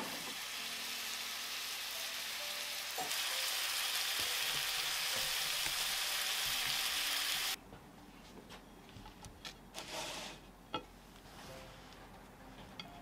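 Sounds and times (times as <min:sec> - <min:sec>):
meat sizzling in a frying pan: 0:00.0 - 0:07.6.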